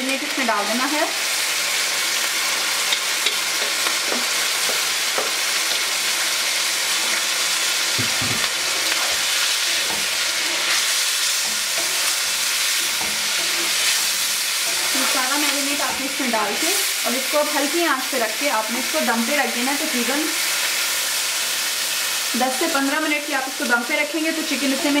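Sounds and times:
chicken sizzling in hot oil: 0:00.0 - 0:25.0
spatula scraping and knocking pan: 0:02.8 - 0:05.9, 0:08.0 - 0:16.6.

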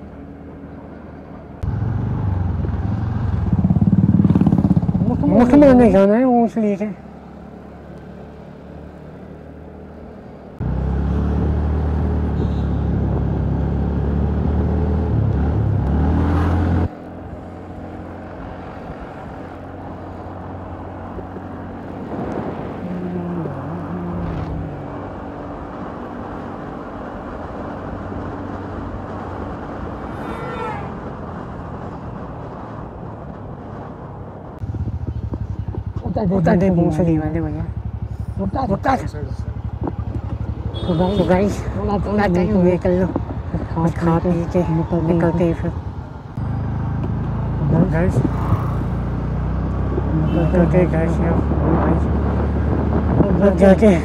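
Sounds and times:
road noise: 0:00.0 - 0:54.0
motorcycle engine accelerating: 0:01.6 - 0:06.2, 0:10.6 - 0:33.9, 0:34.6 - 0:54.0
wind noise: 0:18.6 - 0:37.3, 0:39.5 - 0:46.3, 0:47.6 - 0:54.0.

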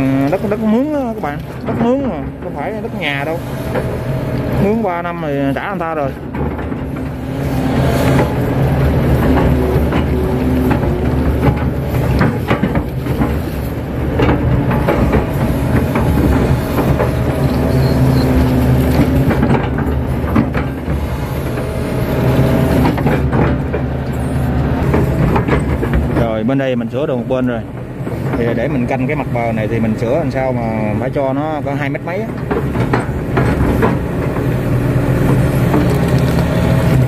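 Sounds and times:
bucket digging wet mud: 0:00.0 - 0:26.5
excavator diesel engine running: 0:00.0 - 0:37.0
knocks and clanks of excavator arm: 0:00.0 - 0:37.0.

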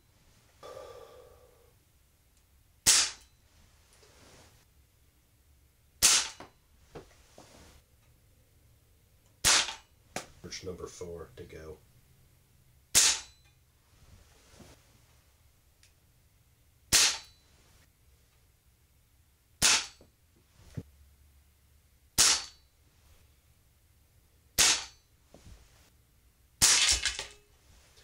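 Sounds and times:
air pistol shots: 0:02.8 - 0:03.2, 0:06.0 - 0:06.4, 0:09.4 - 0:09.9, 0:12.9 - 0:13.4, 0:16.9 - 0:17.3, 0:19.6 - 0:20.0, 0:22.2 - 0:22.6, 0:24.6 - 0:25.0, 0:26.6 - 0:27.4.

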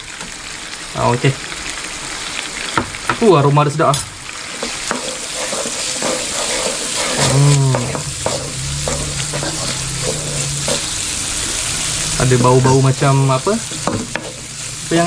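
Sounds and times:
food sizzling in hot oil: 0:00.0 - 0:15.0
spatula scraping wok: 0:04.3 - 0:15.0.

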